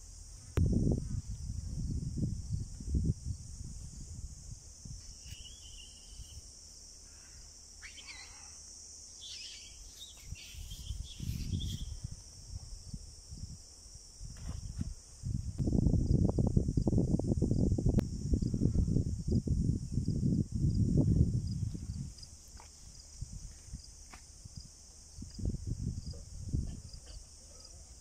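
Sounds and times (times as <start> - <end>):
insects buzzing: 0.0 - 28.0
low rumbling on microphone: 0.3 - 5.2, 14.3 - 27.6
faint chirps: 5.1 - 12.1.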